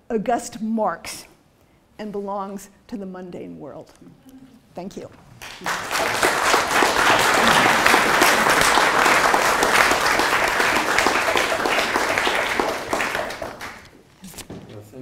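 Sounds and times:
audience applauding: 5.4s - 14.0s.

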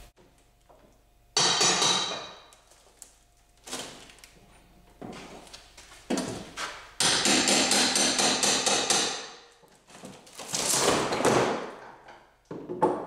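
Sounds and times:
hammer striking wooden frame: 1.4s - 2.5s, 7.0s - 9.5s.

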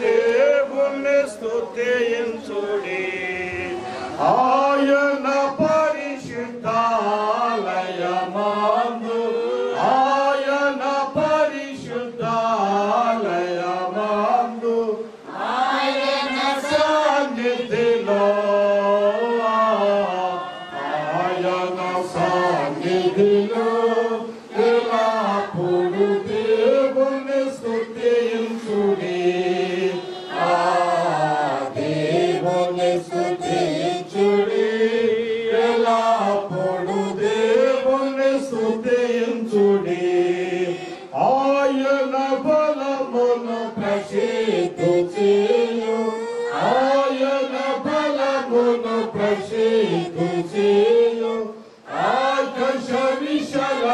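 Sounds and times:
person chant-like singing: 16.2s - 53.9s.

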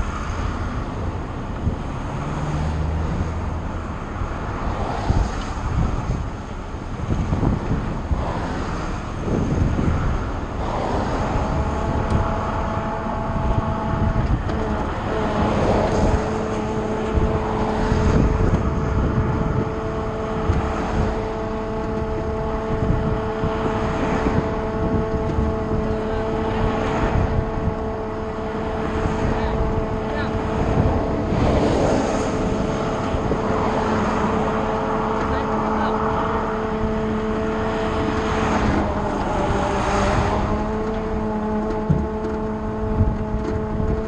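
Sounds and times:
road traffic passing at speed: 0.0s - 44.0s
steady hum of held tones: 9.0s - 44.0s.

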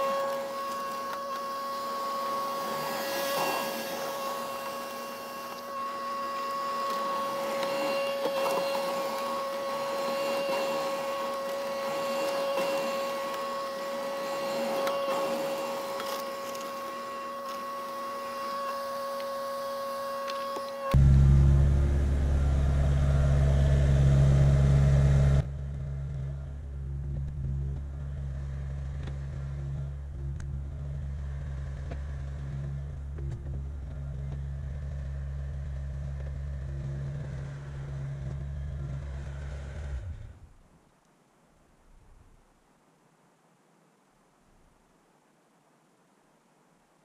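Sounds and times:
excavator diesel engine running: 21.0s - 40.4s.

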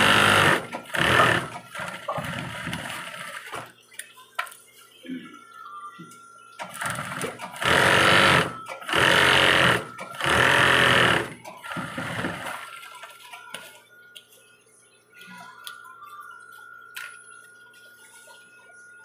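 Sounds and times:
sewing machine stitching: 0.0s - 3.5s, 6.6s - 12.4s.

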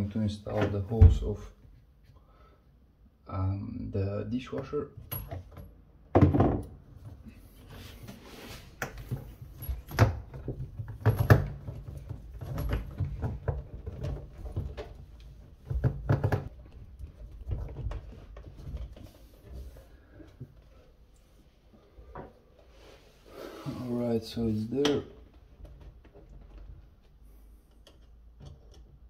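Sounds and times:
plastic hose knocking and clicking: 9.9s - 19.0s.

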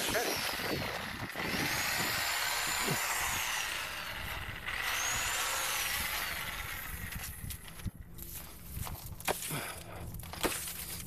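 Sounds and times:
electric saw motor whining: 0.0s - 7.8s.

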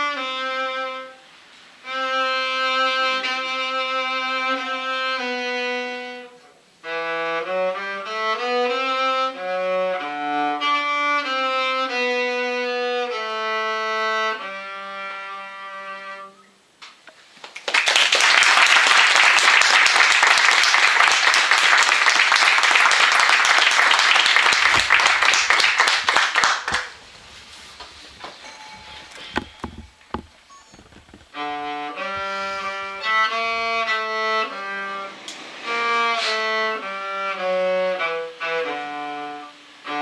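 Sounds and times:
cello: 0.0s - 1.2s, 1.8s - 16.5s, 27.7s - 40.0s
applause: 17.4s - 27.0s.

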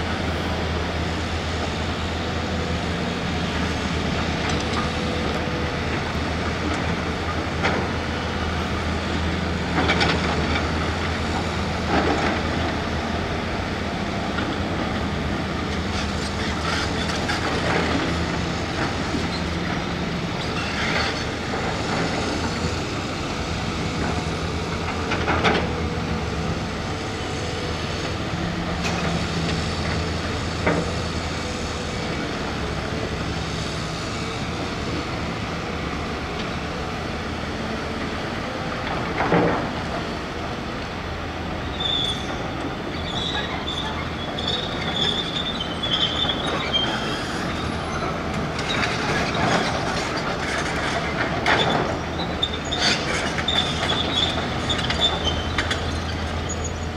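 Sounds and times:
excavator diesel engine running: 0.0s - 56.9s
high squeal: 41.7s - 48.1s.

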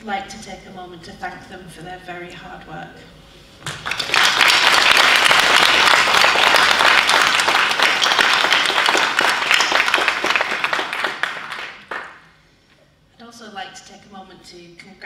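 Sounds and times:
audience applause: 3.7s - 12.2s.

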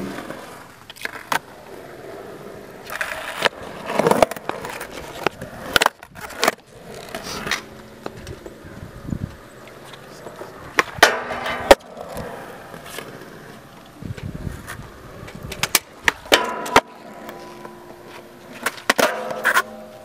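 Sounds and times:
skateboard wheels rolling on concrete: 0.0s - 20.0s
skateboard clacks popping and landing: 2.8s - 8.5s, 10.2s - 20.0s.

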